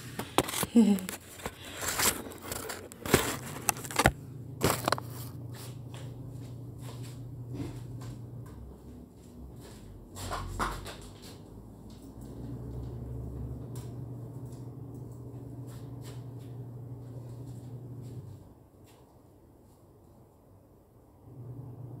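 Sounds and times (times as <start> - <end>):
clothes and phone rustling: 0.0 - 13.0
steady low hum: 0.0 - 18.8.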